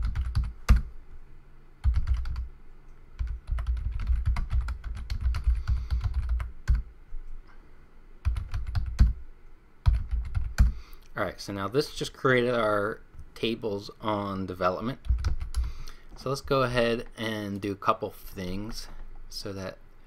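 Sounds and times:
computer keyboard typing: 0:00.0 - 0:00.9, 0:01.8 - 0:02.5, 0:03.2 - 0:06.9, 0:08.2 - 0:09.2, 0:09.8 - 0:10.8, 0:15.0 - 0:15.8.

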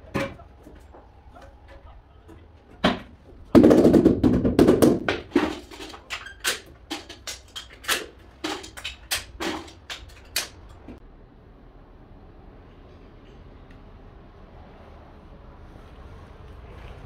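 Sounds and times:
tile knocking and scraping: 0:02.8 - 0:10.5.

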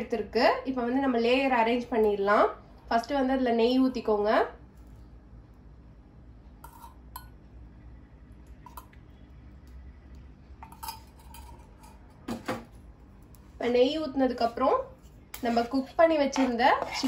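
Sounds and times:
faint low hum: 0:00.0 - 0:17.0
steel ladle clinking on pot: 0:10.6 - 0:12.1.

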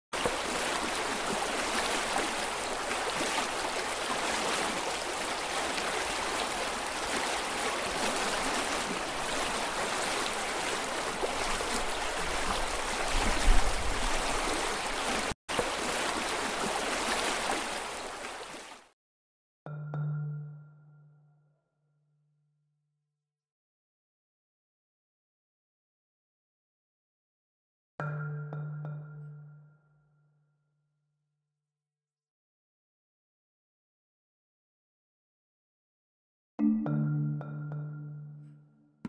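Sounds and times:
water rushing down a channel: 0:00.2 - 0:18.9.

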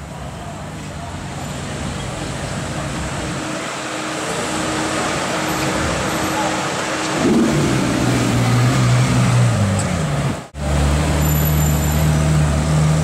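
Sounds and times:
car engine revving: 0:03.5 - 0:13.0.

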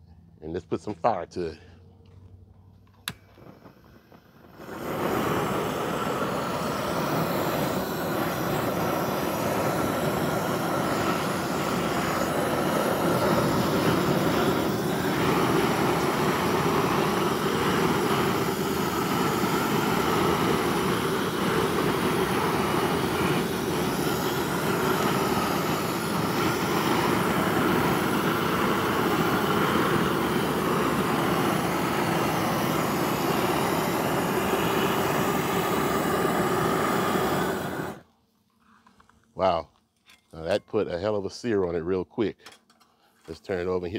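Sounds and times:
propane torch flame rushing: 0:03.0 - 0:38.1.

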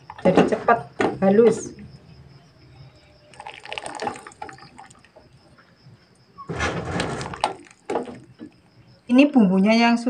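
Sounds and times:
water splashing: 0:03.3 - 0:05.2
water dripping into saucepan: 0:03.3 - 0:05.4.

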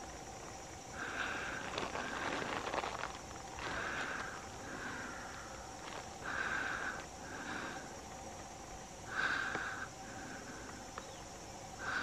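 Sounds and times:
person breathing through nose: 0:06.2 - 0:08.0, 0:09.1 - 0:10.8.

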